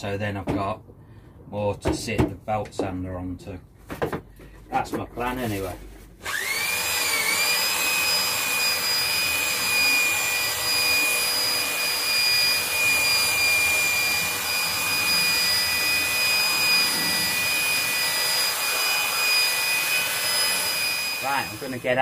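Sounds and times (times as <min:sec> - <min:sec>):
belt sander whining: 0:06.2 - 0:22.0.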